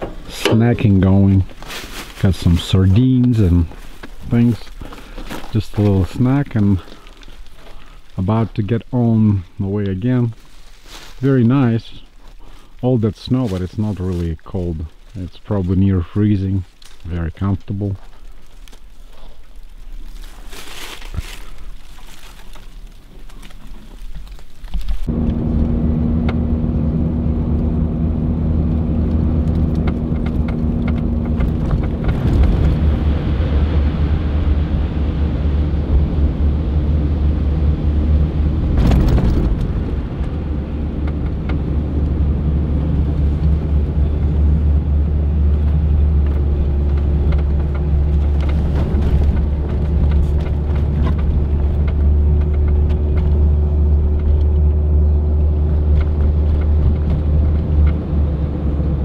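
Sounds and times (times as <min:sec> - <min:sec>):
engine and tyres droning: 0:00.0 - 0:59.0
steady hum: 0:24.9 - 0:59.0.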